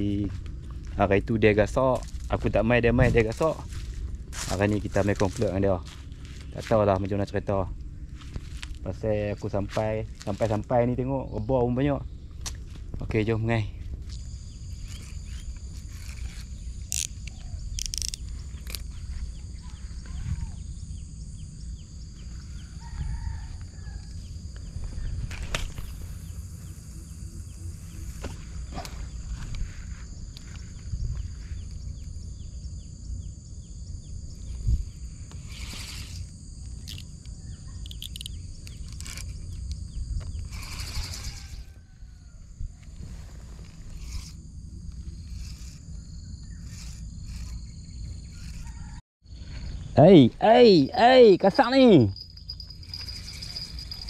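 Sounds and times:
birds chirping: 0.0 - 42.2, 42.8 - 54.0
high insect drone: 0.0 - 54.0
bird chirps: 14.1 - 23.0, 36.8 - 38.9
fishing reel rattling: 14.8 - 19.0, 35.3 - 41.8, 43.6 - 48.7, 52.2 - 54.0
sharp clicks: 35.3 - 41.2.

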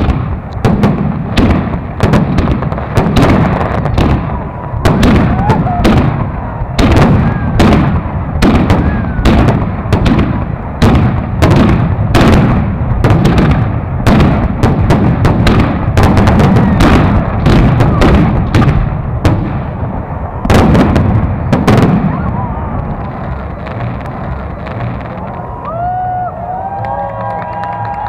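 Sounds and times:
firework bangs: 0.0 - 26.6
low rumble: 0.0 - 28.0.

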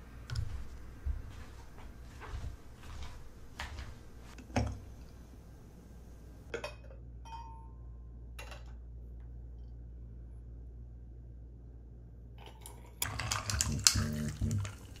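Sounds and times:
glass teaware clinking: 7.2 - 7.8.

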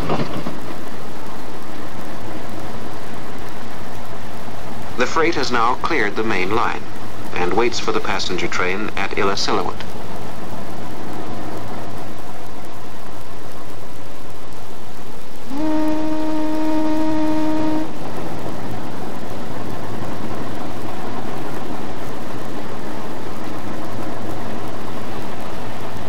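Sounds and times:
train rumbling on rails: 0.0 - 26.0
locomotive horn blast: 15.4 - 18.4.

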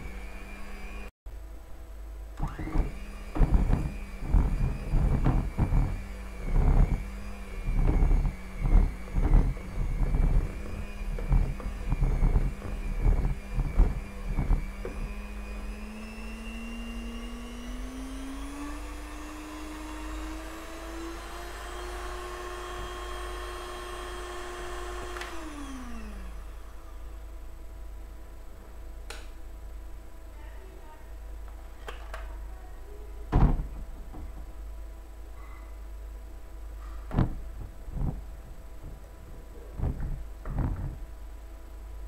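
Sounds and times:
electric hand mixer whirring: 0.0 - 1.1, 2.4 - 27.0, 37.1 - 41.0
mixer knocking on bowl: 2.6 - 15.2, 37.1 - 41.0.

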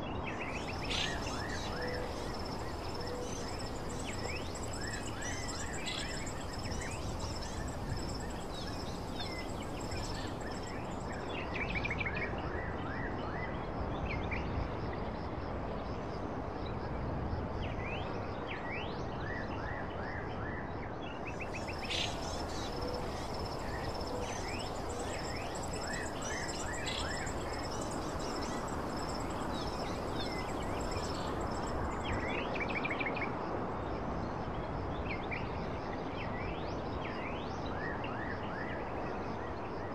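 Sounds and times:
small birds chirping: 0.3 - 11.2, 21.4 - 32.3
high insect-like whine: 0.3 - 12.2, 21.3 - 33.0.

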